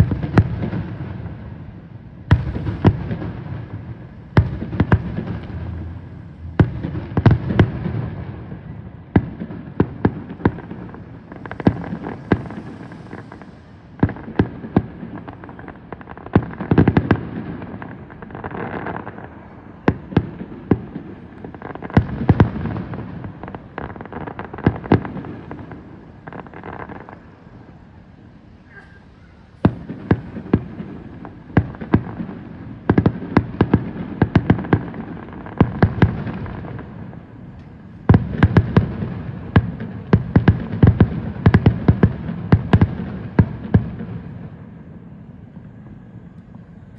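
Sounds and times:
fireworks bangs and crackles: 0.0 - 46.9
low rumble: 5.2 - 7.2.

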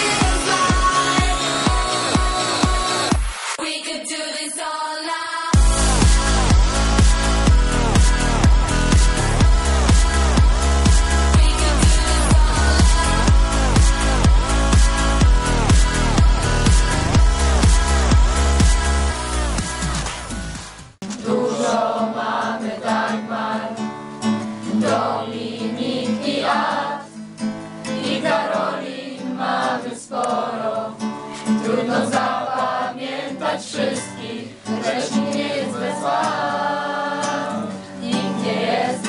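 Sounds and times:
voices singing together: 0.0 - 20.1, 21.0 - 23.9, 24.7 - 27.2, 27.8 - 39.0
strummed acoustic guitar: 21.0 - 39.0.

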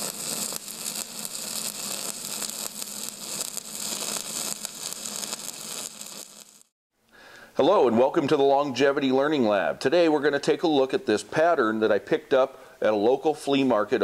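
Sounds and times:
crackling hiss: 0.0 - 6.7.

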